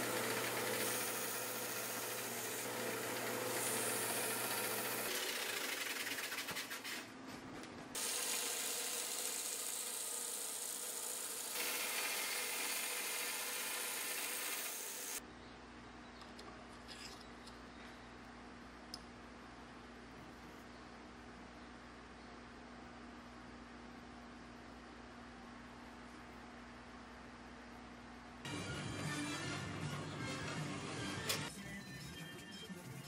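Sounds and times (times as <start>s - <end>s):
grinder motor hum: 0.0s - 5.9s, 8.0s - 15.2s
belt grinder sanding metal: 8.0s - 15.2s.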